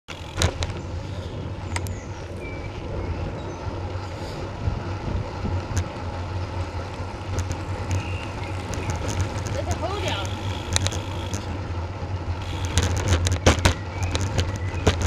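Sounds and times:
tyres rumbling on tarmac: 0.0 - 15.0
wind buffeting microphone: 0.2 - 15.0
sharp clicks: 8.7 - 11.5.

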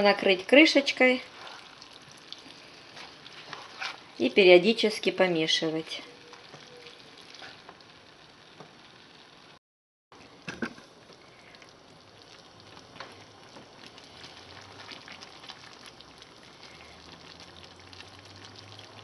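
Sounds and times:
food sizzling in a frying pan: 0.0 - 9.6, 10.2 - 19.0
spatula stirring: 1.1 - 4.6.

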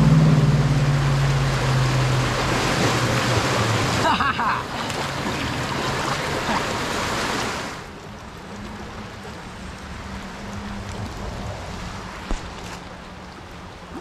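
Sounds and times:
creek water rushing: 0.0 - 14.0.

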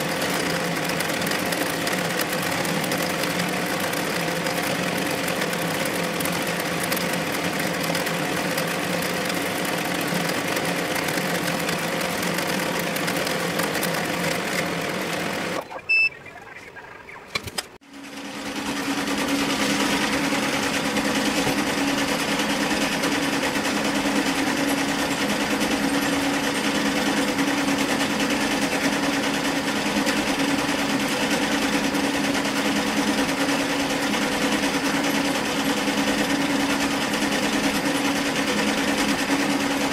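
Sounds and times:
embroidery machine running: 0.0 - 16.4, 17.4 - 39.9
short electronic beep: 15.6 - 16.7
steady machine hum: 17.9 - 39.9.

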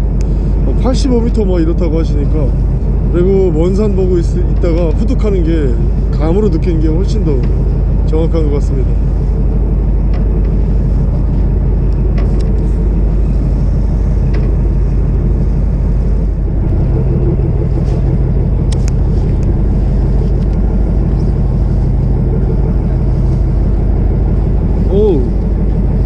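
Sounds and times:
boat engine running: 0.0 - 26.0.

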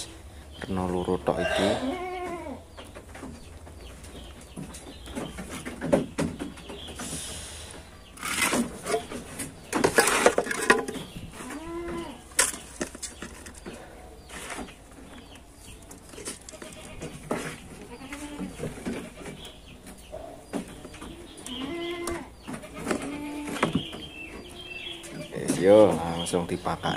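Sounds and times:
goat bleating: 1.4 - 2.6, 11.4 - 12.2, 16.5 - 17.1, 17.8 - 19.4, 21.2 - 23.7.

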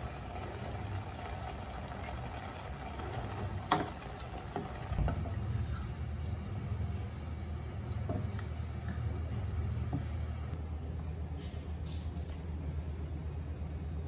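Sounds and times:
vegetables sizzling in a pot: 0.0 - 5.0.

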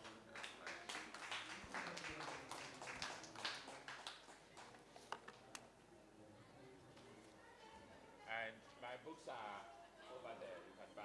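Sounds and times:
audience applause: 0.0 - 4.7.

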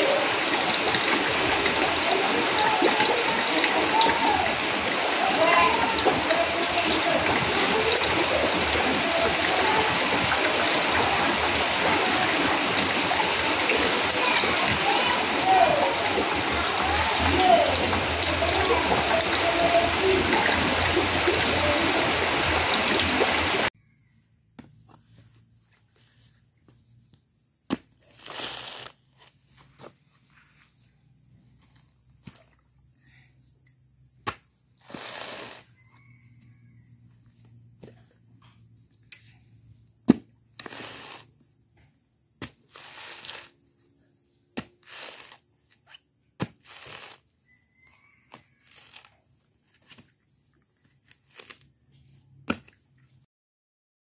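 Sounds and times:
heavy rain: 0.0 - 23.7
husk tearing rasps: 28.0 - 29.1, 34.8 - 35.8, 42.6 - 43.6, 44.6 - 47.2, 51.0 - 51.7
coconut husk knocks: 40.1 - 40.3.

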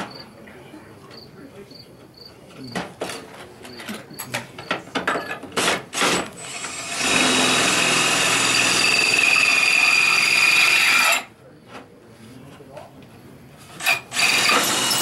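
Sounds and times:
electric drill boring through slate: 6.0 - 11.3, 13.8 - 15.0.

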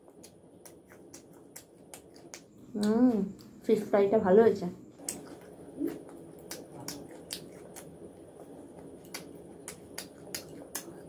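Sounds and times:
person chewing food: 0.0 - 3.6, 5.0 - 11.0
wet mouth clicks and smacks: 0.1 - 3.6, 5.0 - 8.0, 9.0 - 11.0.

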